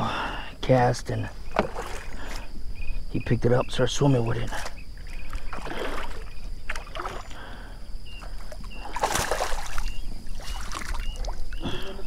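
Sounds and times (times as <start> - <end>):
fish splashing at water surface: 8.8 - 11.4.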